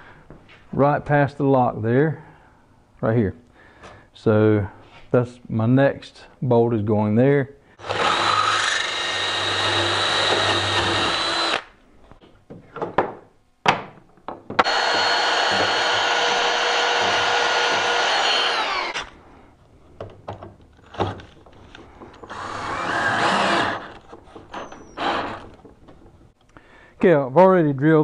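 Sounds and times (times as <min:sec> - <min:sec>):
hand vacuum running: 0:07.8 - 0:11.6, 0:14.6 - 0:19.1, 0:21.8 - 0:25.5
cordless drill boring into metal: 0:07.8 - 0:11.7, 0:14.6 - 0:19.2, 0:22.2 - 0:25.5
clicks and knocks: 0:23.8 - 0:26.4.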